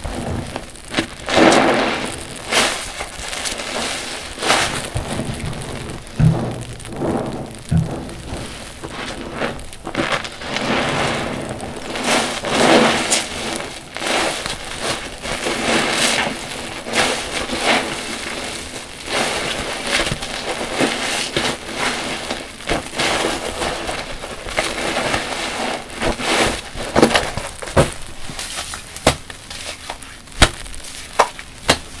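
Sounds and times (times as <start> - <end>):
wet sponge squelching: 0.2 - 28.8
sharp foam pops: 24.1 - 32.0.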